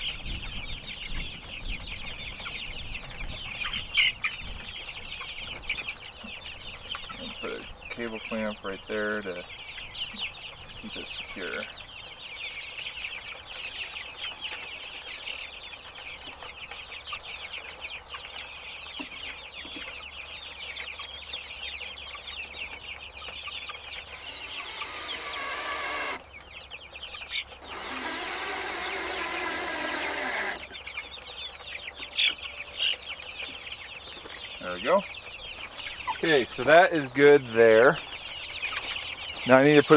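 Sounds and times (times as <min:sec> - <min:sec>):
insects chorus pulsing: 0:00.0 - 0:39.9
cordless drill driving screw: 0:27.6 - 0:30.7.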